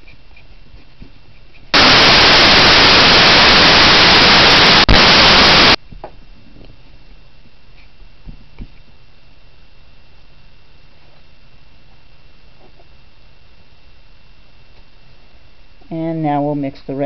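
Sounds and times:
static hiss: 0:01.8 - 0:05.8.

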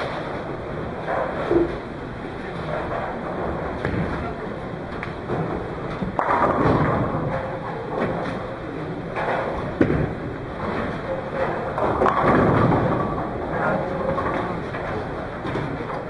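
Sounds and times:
bowling alley clatter: 0:00.0 - 0:16.0
bowling ball rolling: 0:00.0 - 0:16.0
bowling pins crashing: 0:05.2 - 0:16.0.

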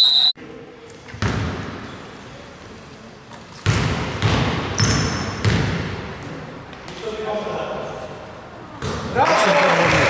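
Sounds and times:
basketball bouncing on hardwood floor: 0:03.6 - 0:05.8.

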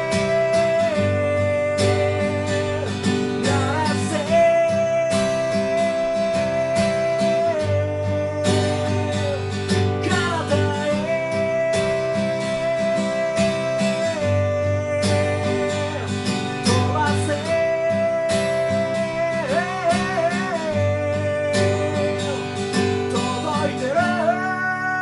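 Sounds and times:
person singing long notes: 0:00.0 - 0:25.0
strummed acoustic guitar: 0:00.0 - 0:25.0.

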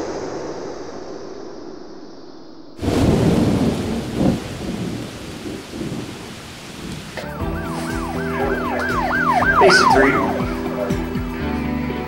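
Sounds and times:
thunder crash: 0:02.8 - 0:11.2
steady rain: 0:02.8 - 0:12.0
siren yelping: 0:07.2 - 0:11.5.

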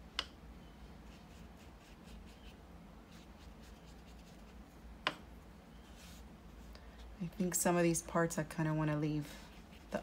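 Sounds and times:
paintbrush brushing on paper: 0:01.0 - 0:04.8, 0:05.8 - 0:06.6, 0:09.3 - 0:10.0.

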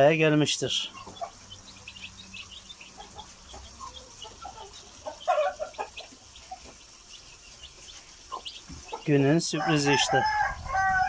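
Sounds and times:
chicks peeping: 0:00.0 - 0:11.0
hen clucking softly: 0:02.8 - 0:06.8.

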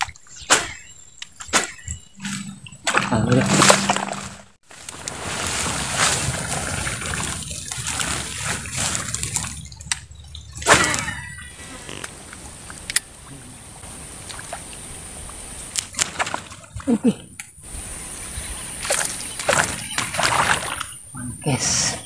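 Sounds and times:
splashing in a pond: 0:00.0 - 0:22.0
loud splash: 0:01.6 - 0:11.6, 0:18.8 - 0:20.9.

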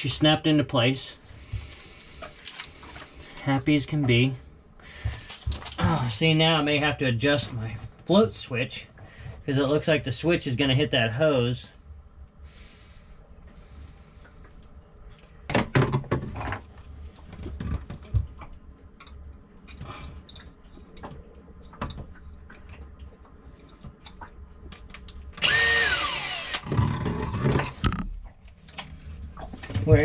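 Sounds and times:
cordless drill winding down: 0:25.4 - 0:26.9
knocks and clicks of tools: 0:26.5 - 0:28.2.

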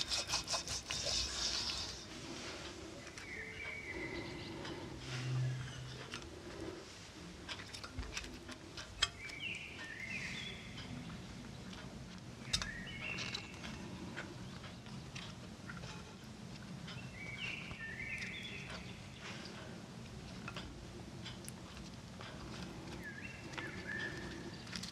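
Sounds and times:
bird chirping: 0:03.0 - 0:06.7, 0:09.0 - 0:11.7, 0:12.4 - 0:15.2, 0:16.9 - 0:19.5, 0:22.6 - 0:24.9.

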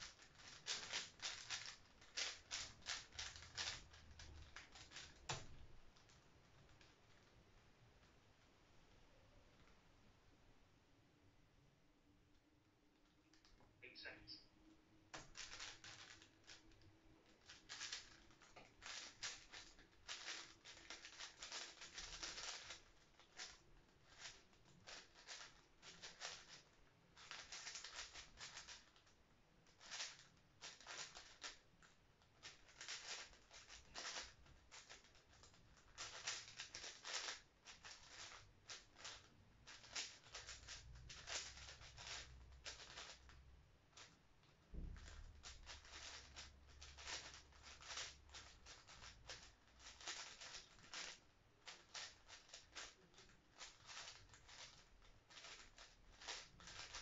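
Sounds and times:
plastic cube clicking: 0:00.0 - 0:05.6, 0:17.4 - 0:26.6, 0:32.4 - 0:43.3, 0:45.0 - 0:57.0.

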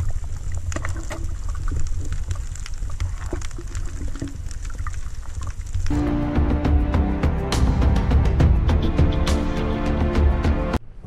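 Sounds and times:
sharp clicks and crackles: 0:00.0 - 0:05.9.

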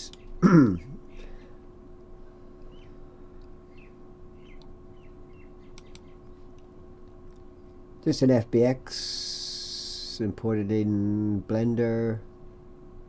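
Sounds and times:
electrical hum: 0:00.0 - 0:13.0
computer mouse clicks: 0:05.7 - 0:06.7.

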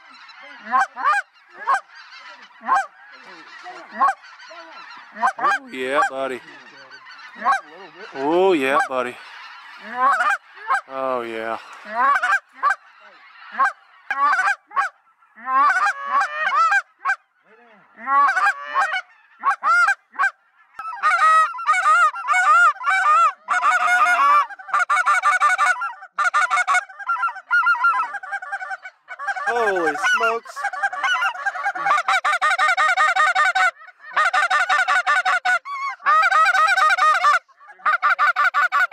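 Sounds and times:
geese honking: 0:00.0 - 0:38.9.

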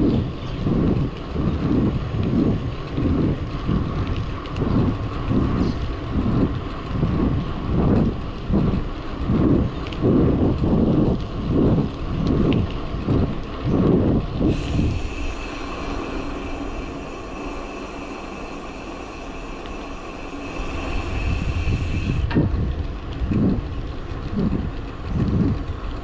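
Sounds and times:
road noise: 0:00.0 - 0:26.0
wind buffeting microphone: 0:00.0 - 0:26.0
thin steady whine: 0:14.2 - 0:26.0.

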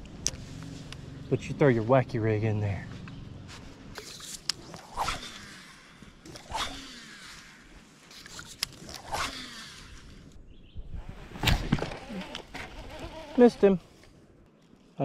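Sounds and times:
fishing rod swishes: 0:04.0 - 0:05.7, 0:06.3 - 0:07.6.

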